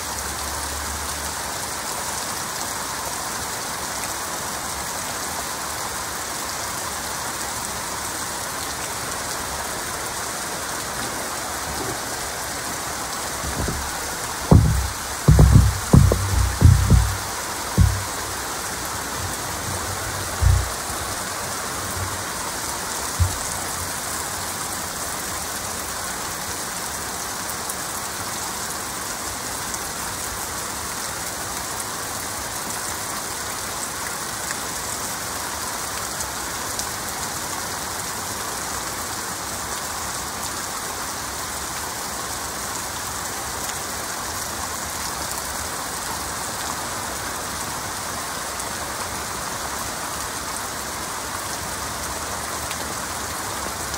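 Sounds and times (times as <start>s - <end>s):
heavy rain: 0.0s - 53.9s
short low thumps: 13.3s - 21.2s, 23.2s - 23.5s.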